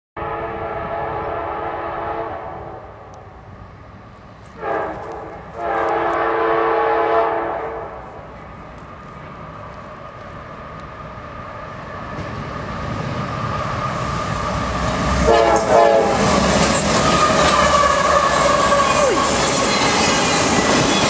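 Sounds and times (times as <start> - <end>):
locomotive air horn blasts: 0.2 - 3.0, 4.6 - 8.0, 15.2 - 16.4, 17.0 - 20.1
train low rumble: 0.2 - 21.0.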